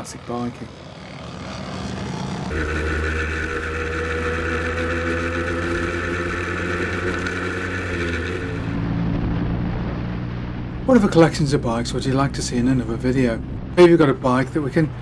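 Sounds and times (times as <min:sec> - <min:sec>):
motorcycle engine running: 0:00.0 - 0:11.2
motorcycle engine heard while riding: 0:00.0 - 0:15.0.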